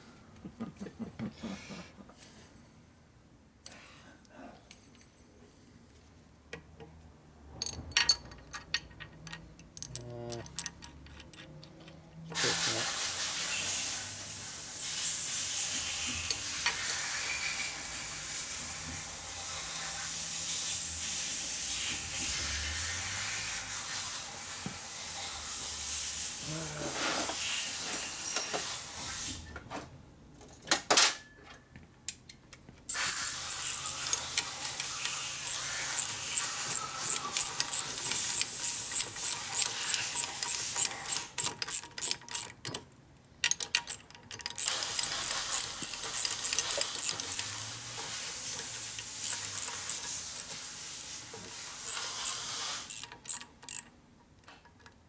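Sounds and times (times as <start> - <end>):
wrench clinking on metal: 7.6 - 12.0, 32.9 - 47.8
steady hiss: 12.3 - 29.2.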